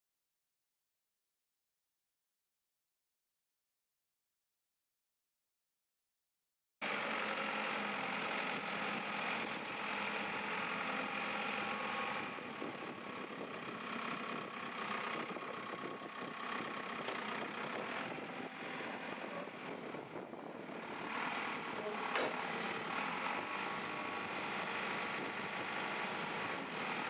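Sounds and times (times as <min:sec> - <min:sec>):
diesel engine running: 0:06.8 - 0:27.0.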